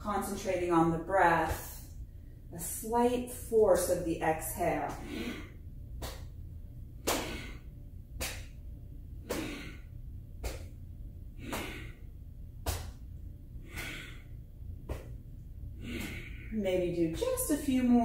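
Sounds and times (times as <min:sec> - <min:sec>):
woman exhaling forcefully: 0:05.0 - 0:05.5, 0:15.8 - 0:16.6.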